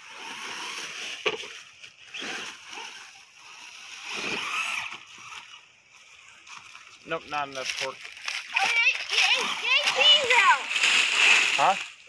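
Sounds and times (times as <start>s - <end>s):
electric rc truck running: 0.0s - 12.0s
tyres rustling through dry leaves: 0.0s - 12.0s.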